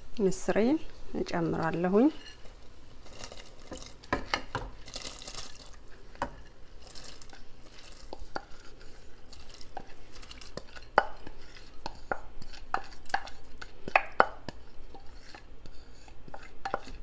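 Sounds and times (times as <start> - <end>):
spoon scraping glass bowl: 1.4 - 4.2, 6.3 - 13.7, 14.5 - 17.0.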